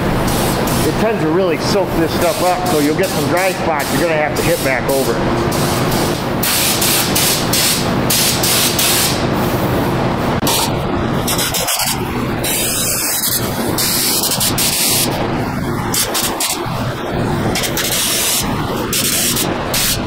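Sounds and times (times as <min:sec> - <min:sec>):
spray gun hissing: 0:00.0 - 0:09.6, 0:11.3 - 0:15.2
steady low hum: 0:00.0 - 0:20.0.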